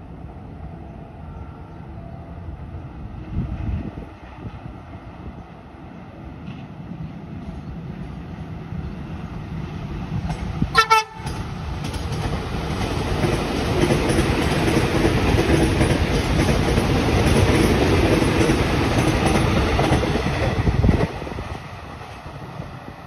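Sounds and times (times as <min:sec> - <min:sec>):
train wheels rumbling on rails: 0:00.0 - 0:23.0
train horn toot: 0:10.7 - 0:11.4.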